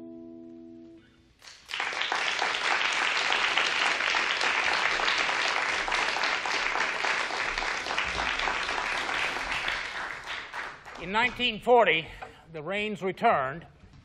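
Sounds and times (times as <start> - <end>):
audience applauding: 1.4 - 11.7.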